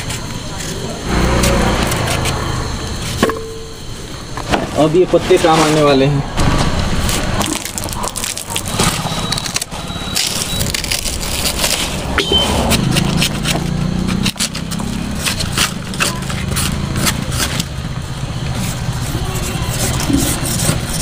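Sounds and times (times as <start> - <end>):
banana leaves tearing and rustling: 6.4 - 17.8.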